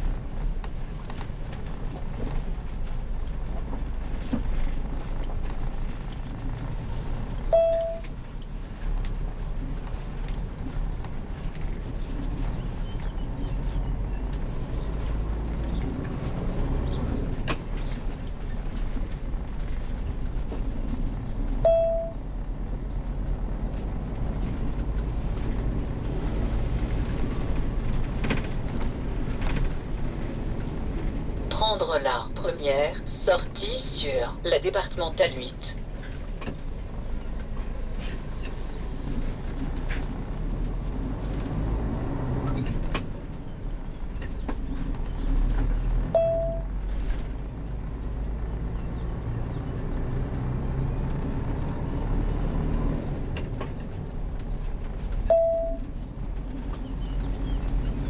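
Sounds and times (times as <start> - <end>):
engine and road rumble: 0.0 - 58.0
short beep tone: 7.5 - 8.0, 21.6 - 22.2, 46.2 - 46.7, 55.3 - 55.8.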